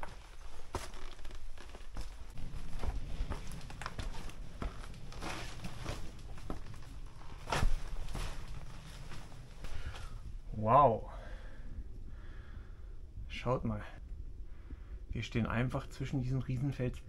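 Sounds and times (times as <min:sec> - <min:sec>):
footsteps on rocky path: 0:00.0 - 0:10.2
rustling: 0:00.0 - 0:10.3.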